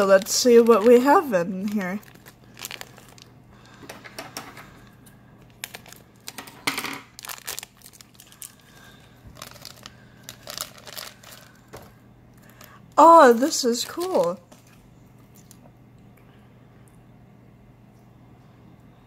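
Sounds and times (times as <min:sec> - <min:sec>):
plastic packet tearing: 0:00.0 - 0:03.3, 0:05.5 - 0:11.8, 0:12.4 - 0:14.7
plastic packet crinkling: 0:00.0 - 0:03.8, 0:05.4 - 0:14.8.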